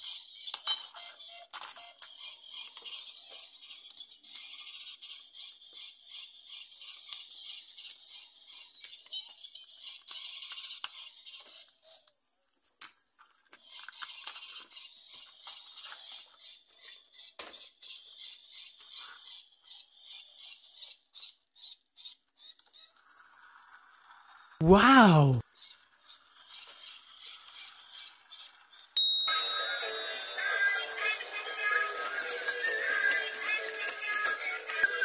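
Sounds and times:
plastic toy parts clicking: 3.9s - 4.5s.

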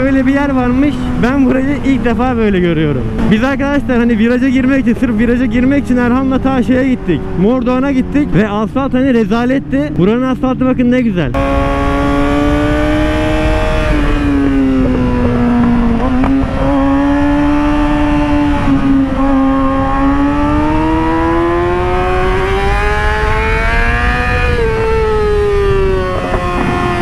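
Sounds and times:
motorcycle engine revving high: 0.0s - 10.2s, 11.3s - 27.0s
wind noise on microphone: 11.4s - 27.0s.

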